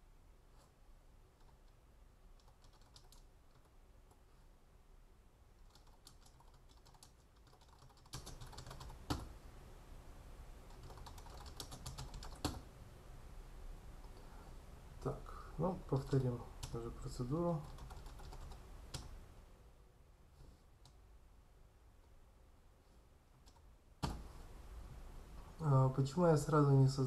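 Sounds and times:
computer keyboard typing: 0:01.4 - 0:01.8, 0:02.4 - 0:03.7, 0:05.6 - 0:09.3, 0:10.7 - 0:12.6, 0:15.8 - 0:16.9, 0:17.6 - 0:19.1.

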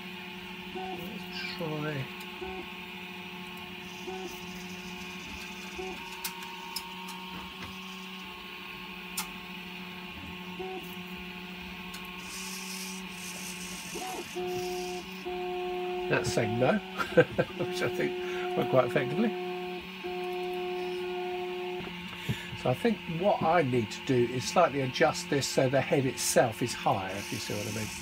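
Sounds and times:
steady hum: 0:00.0 - 0:28.0
servo motors whirring: 0:03.5 - 0:08.3, 0:12.0 - 0:28.0.

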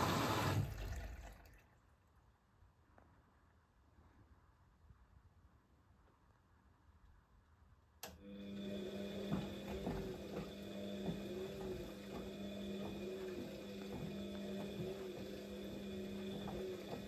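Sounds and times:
washing machine drum motor whine: 0:00.0 - 0:00.8, 0:08.0 - 0:17.0
knocks of laundry turning: 0:08.6 - 0:17.0.

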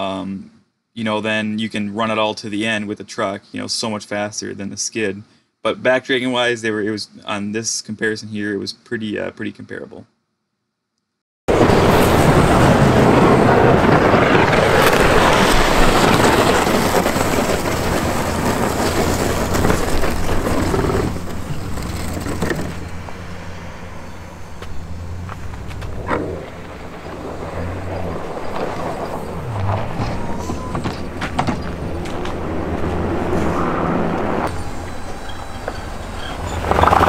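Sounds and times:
pickup truck engine rumbling: 0:11.5 - 0:37.0
plow scraping across pavement: 0:11.5 - 0:37.0.

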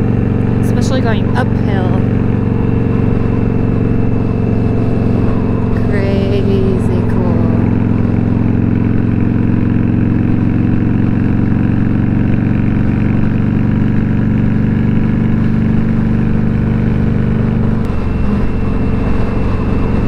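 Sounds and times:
motorcycle engine cruising: 0:00.0 - 0:20.0.

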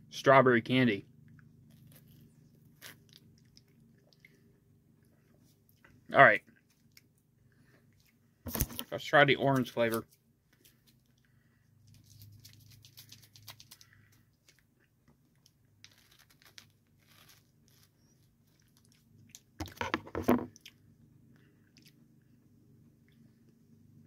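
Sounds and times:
crunching and chewing ice: 0:01.2 - 0:04.4, 0:12.0 - 0:19.8.

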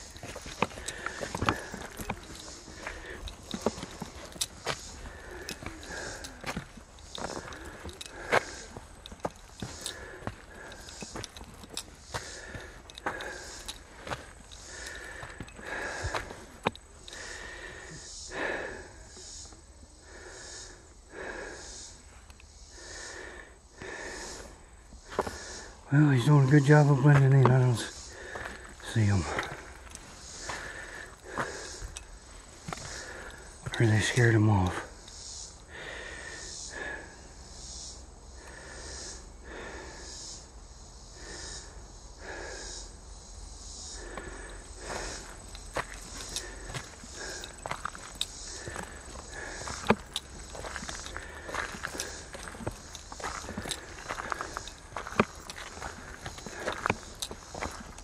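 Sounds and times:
footsteps crunching on gravel: 0:00.0 - 0:17.6, 0:25.1 - 0:34.7, 0:44.0 - 0:58.0
person breathing: 0:00.0 - 0:25.9, 0:27.9 - 0:33.8, 0:35.6 - 0:37.4, 0:38.2 - 0:40.2, 0:41.1 - 0:43.1, 0:43.8 - 0:58.0.

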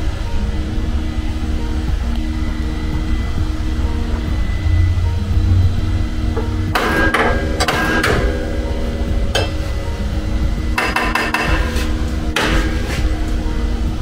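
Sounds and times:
hammer tapping on metal panel: 0:10.8 - 0:11.8.

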